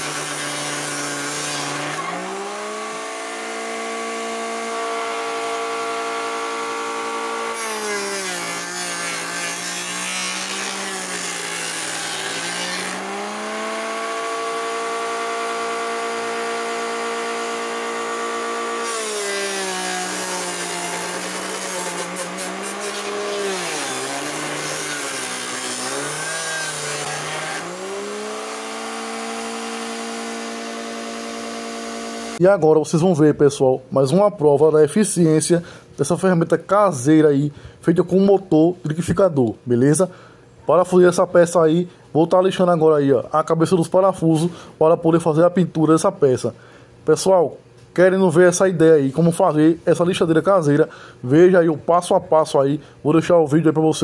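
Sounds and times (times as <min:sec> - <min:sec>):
abrasive scratching wood: 0:00.0 - 0:32.4
sander motor whining: 0:00.0 - 0:32.4.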